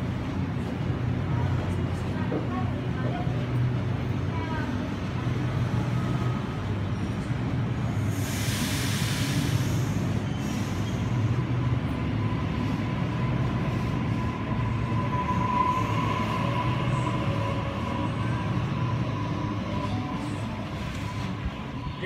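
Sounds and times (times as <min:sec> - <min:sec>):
electric train whine: 0:05.5 - 0:22.0.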